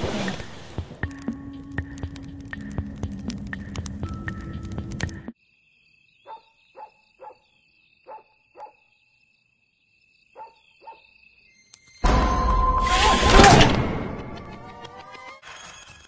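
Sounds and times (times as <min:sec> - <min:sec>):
music track: 0:00.4 - 0:05.3
crickets chirring: 0:05.4 - 0:12.0
dog barking: 0:06.2 - 0:08.9, 0:10.4 - 0:11.1.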